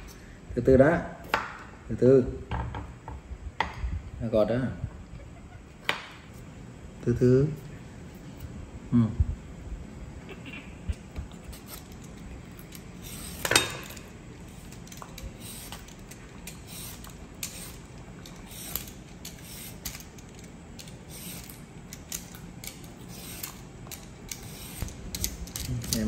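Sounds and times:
peeler scraping carrot: 0:11.3 - 0:12.2, 0:12.8 - 0:20.2, 0:20.8 - 0:26.0.

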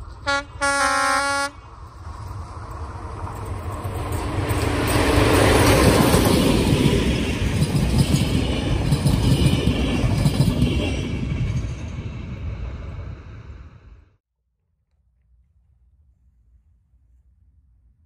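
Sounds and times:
diesel locomotive passing: 0:00.0 - 0:14.2
train wheels clattering on rails: 0:01.7 - 0:12.4.

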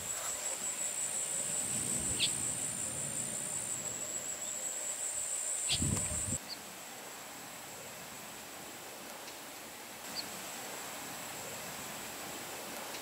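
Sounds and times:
insects trilling: 0:00.0 - 0:08.4, 0:10.0 - 0:13.0
bird chirps: 0:01.7 - 0:04.6, 0:05.6 - 0:06.6.

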